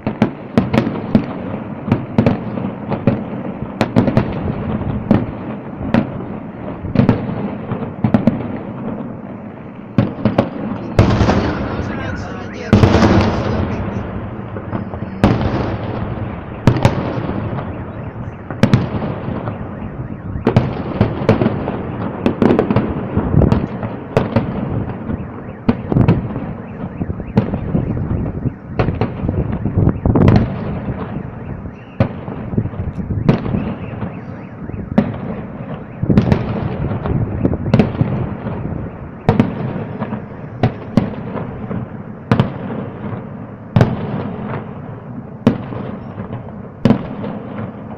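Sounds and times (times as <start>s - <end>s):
fireworks bursting: 0.0s - 47.9s
echoing rumble: 8.4s - 25.2s.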